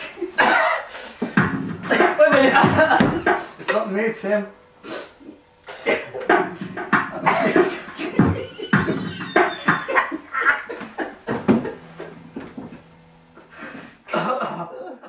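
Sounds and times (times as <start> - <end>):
people laughing: 1.9 - 3.5, 7.1 - 12.8, 14.1 - 15.0.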